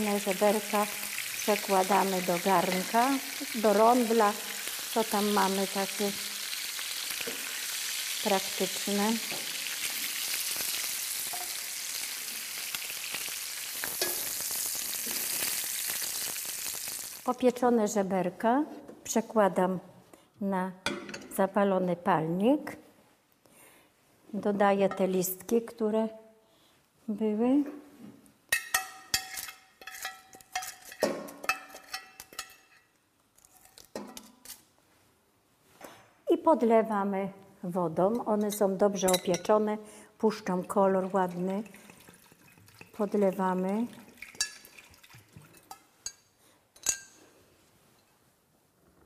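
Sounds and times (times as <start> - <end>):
ribs sizzling in a frying pan: 0.0 - 17.4
metal fork clinking on glass dish: 28.5 - 32.8, 46.8 - 47.2.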